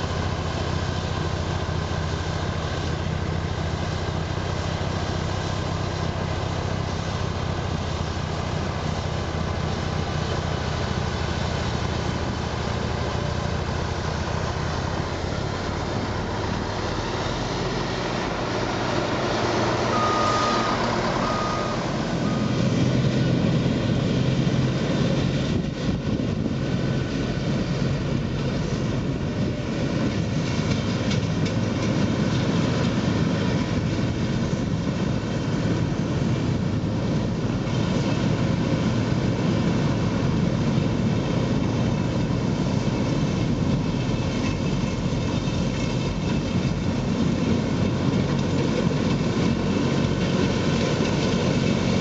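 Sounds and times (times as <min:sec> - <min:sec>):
snow blower engine rumble: 0:00.0 - 0:52.0
reversing alarm beeps: 0:19.9 - 0:22.7.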